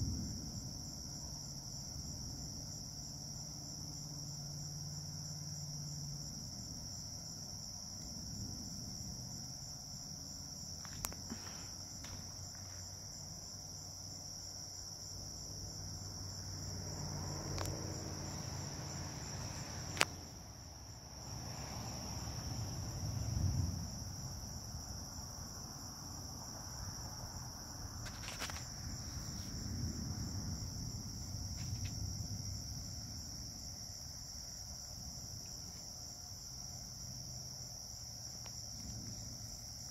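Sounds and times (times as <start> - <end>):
crickets trilling: 0.0 - 39.9
distant thunder rumbling: 21.3 - 27.2, 27.8 - 33.6.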